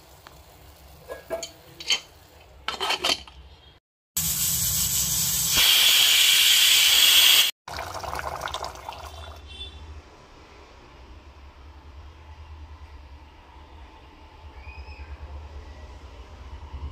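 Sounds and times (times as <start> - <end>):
pressure cooker steam whistling: 4.2 - 7.5.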